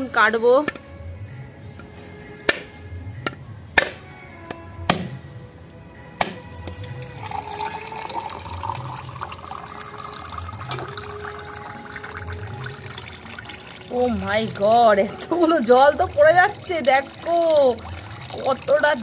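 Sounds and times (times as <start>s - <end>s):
coconut water trickling: 6.2s - 19.0s.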